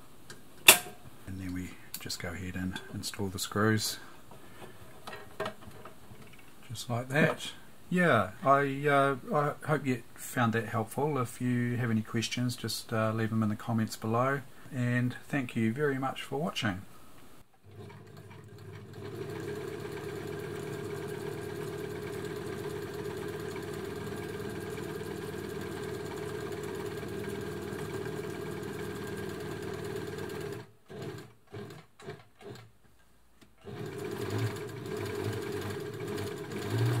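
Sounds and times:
sewing machine stitching: 17.6s - 32.7s, 33.6s - 37.0s.

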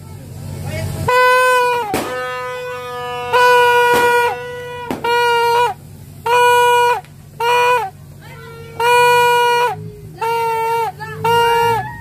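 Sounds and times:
party horn blasts: 1.0s - 12.0s
sharp pops: 1.8s - 2.4s, 4.9s - 5.4s.

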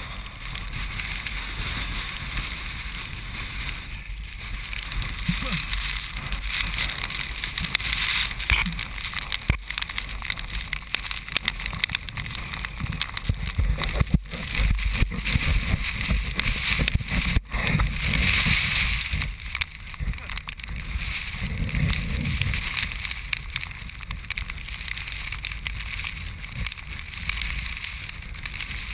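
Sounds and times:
hiss of wind-blown sand: 0.0s - 9.4s.

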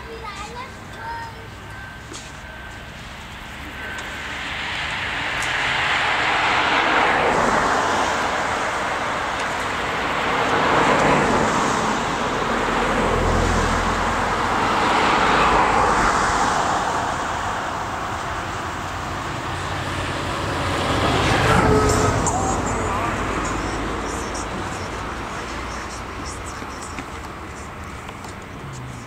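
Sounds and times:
heavy vehicle rumble: 0.0s - 29.0s
road traffic passing: 0.0s - 29.0s.

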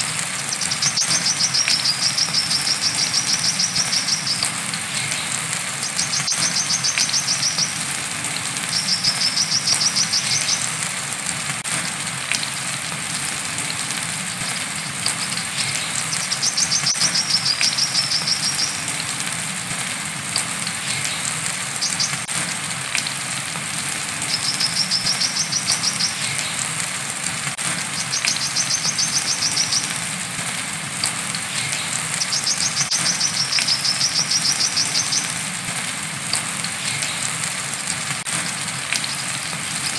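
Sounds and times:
rain hissing: 0.0s - 39.9s
bird singing trilled phrases: 0.3s - 7.8s, 8.7s - 10.8s, 14.8s - 18.9s, 20.8s - 22.3s, 24.3s - 26.6s, 28.0s - 30.0s, 31.4s - 35.4s.

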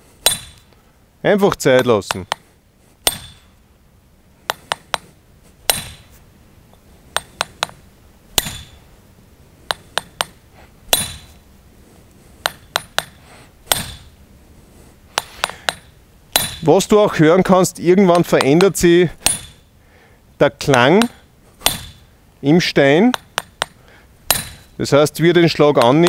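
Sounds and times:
hammer tapping chisel on stone: 1.8s - 2.5s, 18.1s - 19.5s, 23.1s - 24.6s, 25.8s - 26.0s.

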